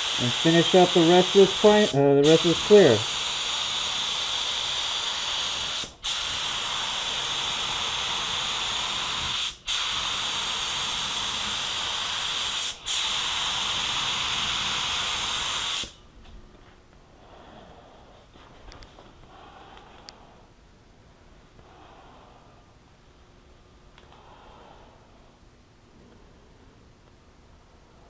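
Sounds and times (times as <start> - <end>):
spray gun hissing: 0.0 - 16.0.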